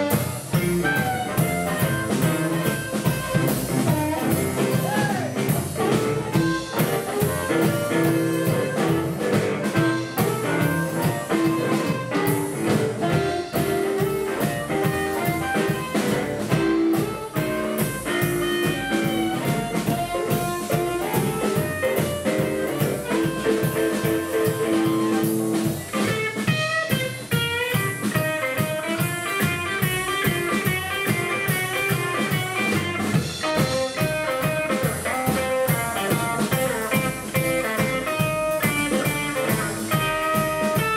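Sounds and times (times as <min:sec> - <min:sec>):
upright double bass: 0:00.0 - 0:25.9
drums: 0:00.0 - 0:40.9
electric guitar solo: 0:00.0 - 0:40.9
harmonica solo: 0:00.0 - 0:40.9.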